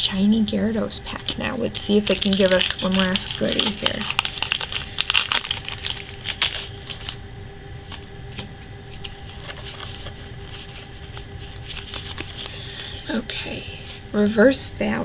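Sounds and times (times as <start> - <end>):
foil wrapper crinkling and tearing: 1.3 - 7.2, 8.9 - 13.0
cards being handled: 1.7 - 7.2, 7.8 - 13.0.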